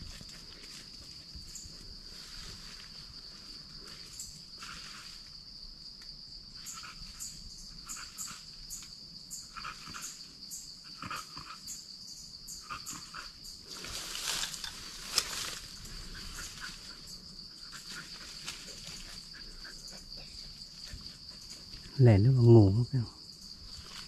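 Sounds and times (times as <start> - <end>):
high insect drone: 0.0 - 24.0
rustling: 13.6 - 19.9.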